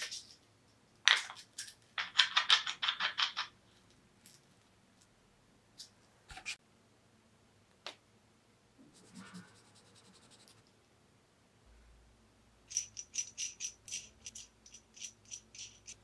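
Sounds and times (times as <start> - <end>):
bolt threads scratching: 12.7 - 16.0.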